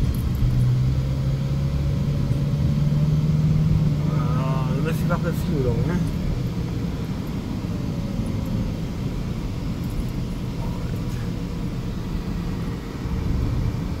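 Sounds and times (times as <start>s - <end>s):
engine and tyre rumble: 0.0s - 14.0s.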